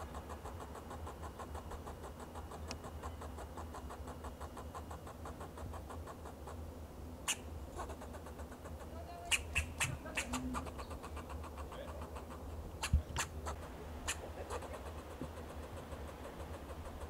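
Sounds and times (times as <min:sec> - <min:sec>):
squirrel alarm calls: 0:00.0 - 0:17.0
squirrel sharp bark: 0:07.3 - 0:08.2, 0:09.3 - 0:15.0.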